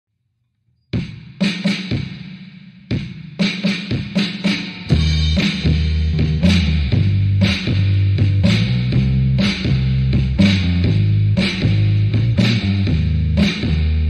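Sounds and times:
drum beat: 1.0s - 14.0s
bass line: 4.9s - 14.0s.

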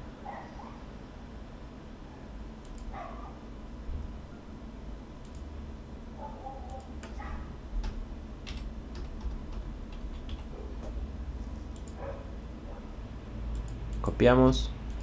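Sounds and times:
steady low hum: 0.0s - 15.0s
keyboard and mouse clicks: 2.6s - 3.0s, 5.2s - 5.5s, 6.6s - 7.2s, 7.8s - 11.0s, 11.7s - 12.0s, 13.5s - 14.1s.

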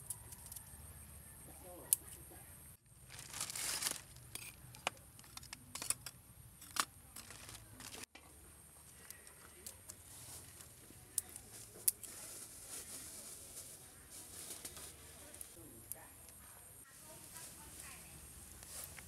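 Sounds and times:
plastic bag rustling: 2.9s - 4.6s, 7.1s - 8.1s, 11.4s - 15.6s.

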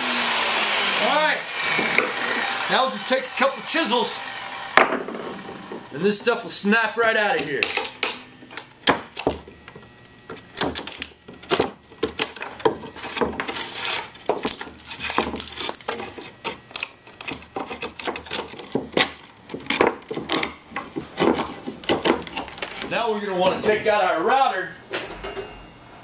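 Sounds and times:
chisel breaking wood strips: 1.6s - 4.0s, 10.3s - 22.9s.

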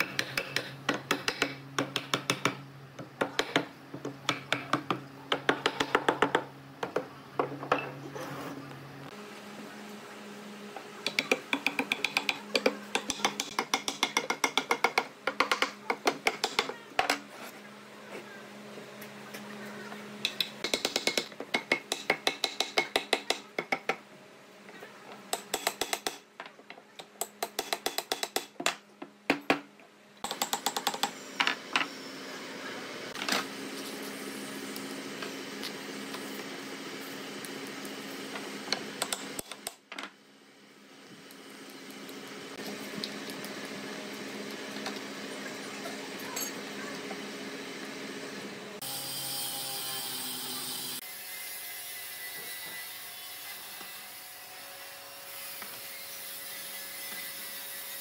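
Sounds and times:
hammer tapping wood: 3.2s - 7.1s.

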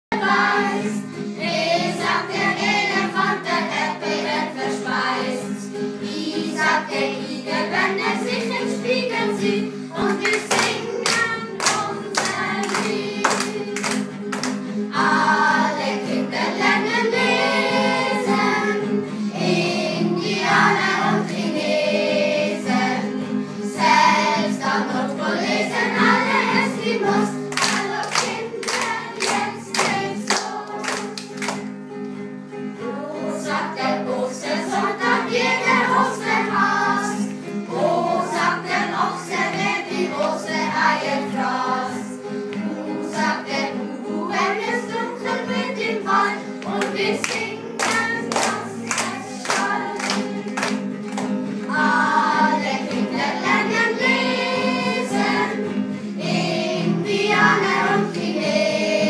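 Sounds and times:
children singing: 0.1s - 31.6s, 32.8s - 59.0s
clapping in rhythm: 9.9s - 15.9s, 25.4s - 31.8s, 46.2s - 53.6s.

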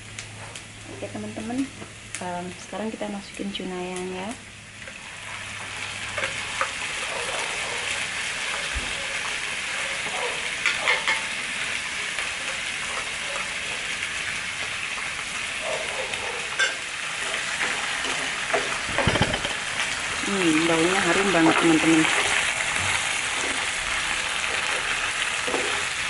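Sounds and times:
onion sizzling in oil: 0.0s - 26.0s
spatula stirring pan: 21.1s - 26.0s.

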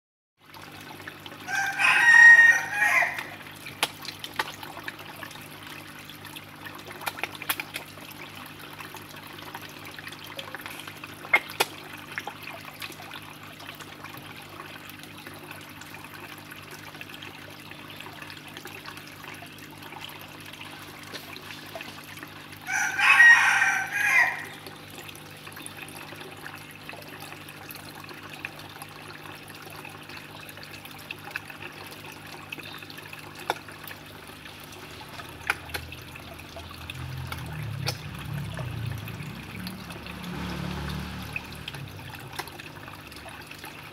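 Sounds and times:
water splashes and trickles: 0.4s - 43.9s
low steady hum: 0.6s - 43.9s
rooster crowing: 1.5s - 3.4s, 22.7s - 24.6s.

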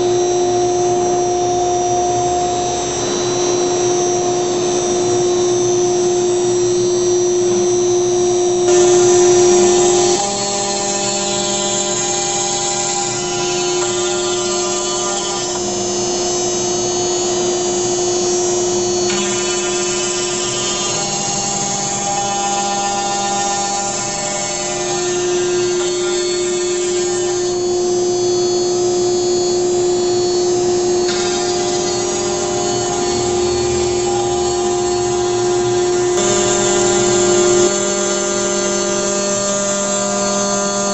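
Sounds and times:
router spindle high whine: 0.0s - 40.9s
rushing cutting noise: 8.7s - 38.5s.

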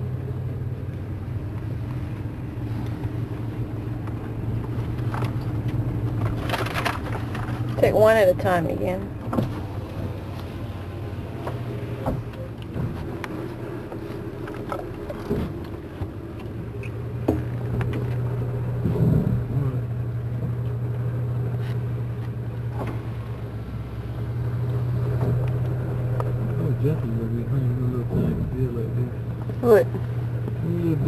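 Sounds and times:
vehicle engine humming: 0.0s - 31.0s
light knocks and bumps: 11.3s - 19.6s.

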